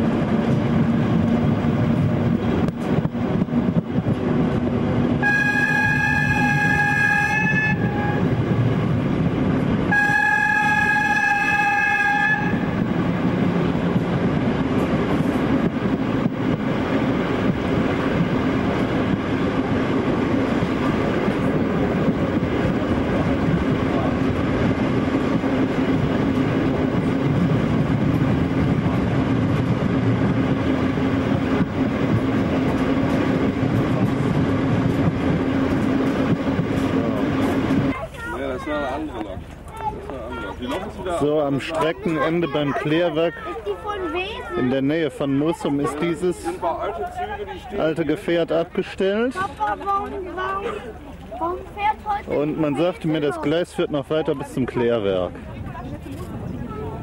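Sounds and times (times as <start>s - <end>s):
train wheel and track noise: 0.0s - 57.0s
locomotive horn blasts: 5.2s - 8.4s, 9.9s - 12.8s.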